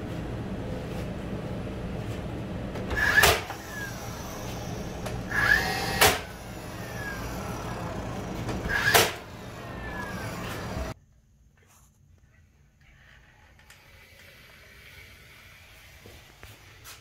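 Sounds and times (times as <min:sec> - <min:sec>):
steady low hum: 0:00.0 - 0:13.5
nail gun firing: 0:03.0 - 0:03.6, 0:05.4 - 0:06.3, 0:08.7 - 0:09.3.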